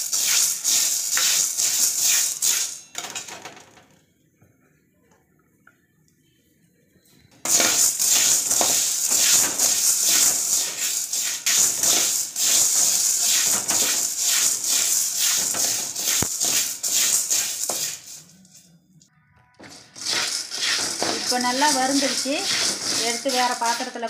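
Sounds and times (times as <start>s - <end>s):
chickpeas rattling in metal pan: 0.0s - 3.4s, 7.4s - 18.6s, 19.6s - 24.0s.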